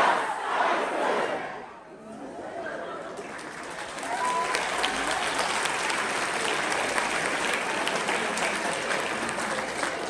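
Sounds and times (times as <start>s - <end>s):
crowd applauding: 3.1s - 10.0s.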